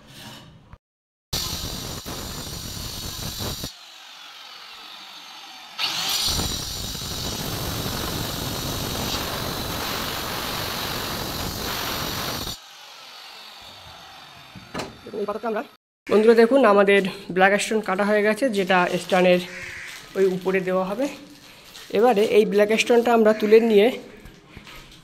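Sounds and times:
stone cutter cutting stone: 1.4s - 15.8s.

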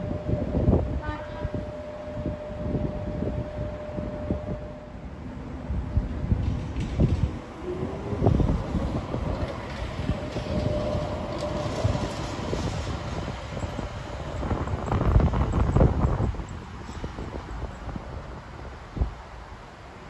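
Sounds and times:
wind buffeting microphone: 0.0s - 4.8s, 5.6s - 20.0s
faint steady whine: 0.0s - 6.4s
tram running on rails: 0.0s - 20.0s.

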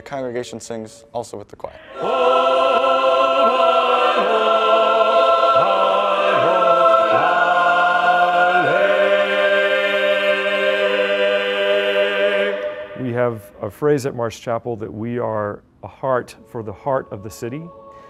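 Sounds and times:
mixed choir singing: 1.8s - 13.7s, 16.5s - 18.0s.

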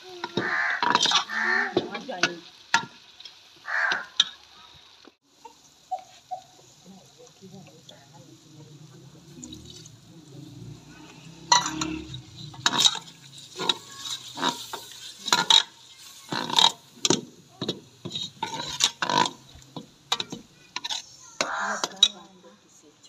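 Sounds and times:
metal spoon scraping a pot: 0.8s - 1.3s, 10.8s - 16.8s, 18.0s - 22.2s.

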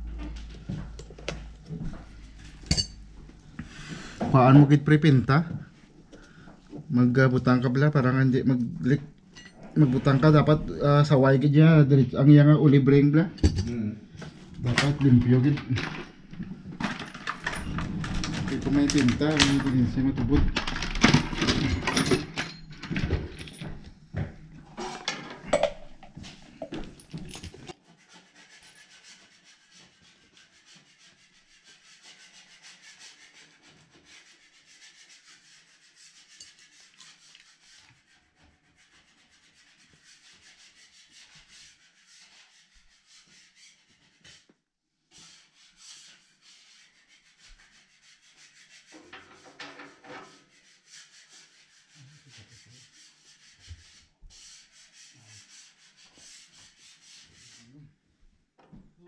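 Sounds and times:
tools clattering on cloth: 2.6s - 3.0s, 13.4s - 13.8s, 16.8s - 23.9s, 24.8s - 27.8s.

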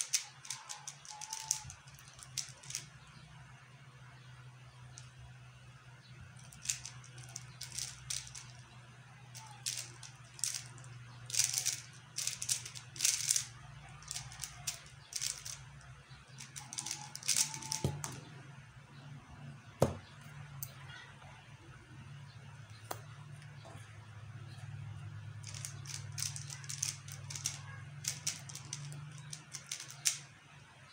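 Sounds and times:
plastic puzzle cube clicking: 0.0s - 2.9s, 6.4s - 8.6s, 9.4s - 15.7s, 16.3s - 18.3s, 25.4s - 30.3s.

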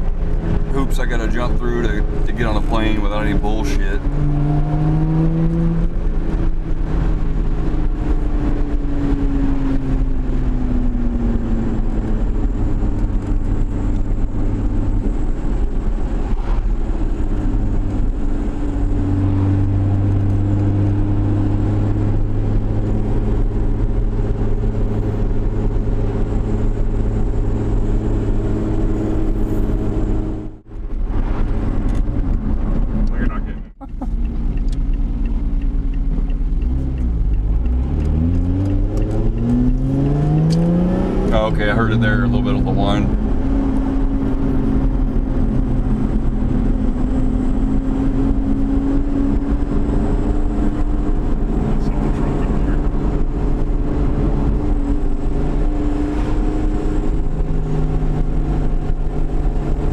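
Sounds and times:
car engine droning: 0.0s - 59.9s
road and tyre noise: 0.0s - 59.9s.

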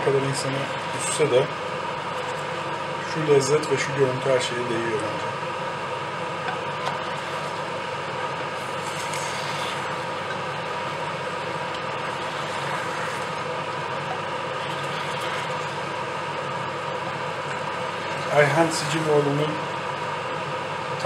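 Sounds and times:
octopus sizzling and bubbling in pot: 0.0s - 21.0s.

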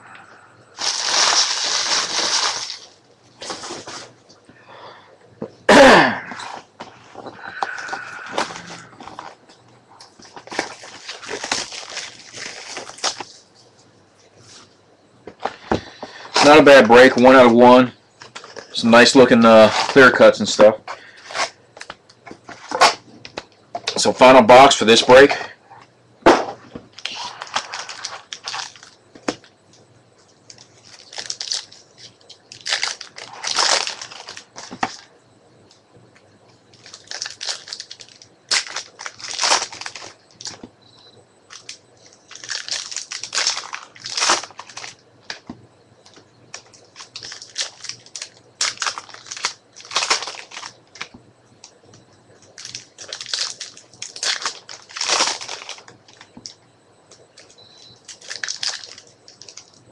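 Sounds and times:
card pack wrappers tearing: 0.8s - 4.1s, 10.2s - 13.4s, 18.4s - 20.4s, 27.0s - 29.4s, 30.5s - 35.1s, 36.7s - 40.6s, 41.5s - 45.4s, 46.1s - 51.1s, 52.5s - 56.3s, 57.4s - 59.8s
wrapper crinkling: 0.8s - 4.1s, 10.1s - 13.5s, 26.9s - 29.4s, 30.4s - 35.1s, 36.7s - 40.7s, 41.5s - 45.4s, 46.1s - 51.1s, 52.5s - 56.3s, 57.4s - 59.8s.

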